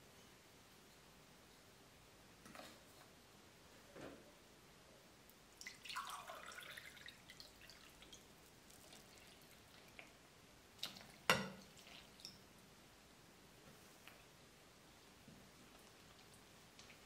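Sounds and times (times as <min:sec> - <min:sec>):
water dripping: 0:05.3 - 0:12.5
water pouring into a glass: 0:05.6 - 0:09.8.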